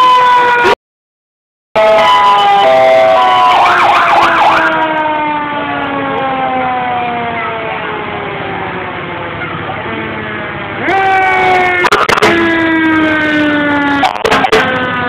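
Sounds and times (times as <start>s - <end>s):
fast-warbling siren: 0.0s - 0.8s, 1.8s - 9.6s, 10.2s - 15.0s
siren sliding down in pitch: 0.0s - 0.8s, 1.8s - 15.0s.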